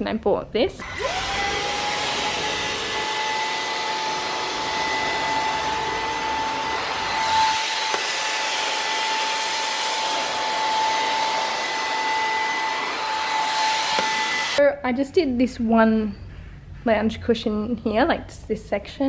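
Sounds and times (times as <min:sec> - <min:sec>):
vacuum cleaner whine: 0:00.8 - 0:14.6.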